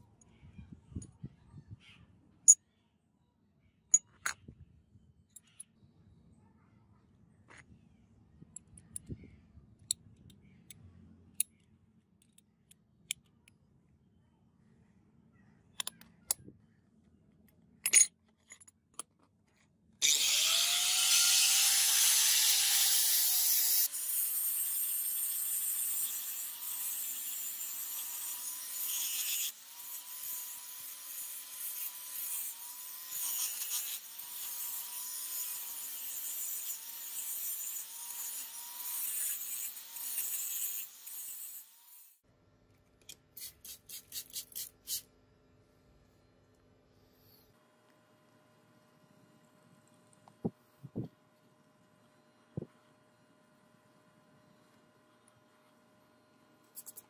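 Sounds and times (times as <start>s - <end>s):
clicks of small metal parts: 15.8s - 16.5s
angle grinder grinding metal: 20.0s - 42.2s.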